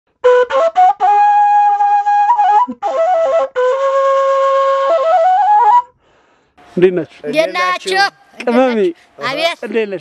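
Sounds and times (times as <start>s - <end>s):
solo flute melody: 0.1s - 6.0s.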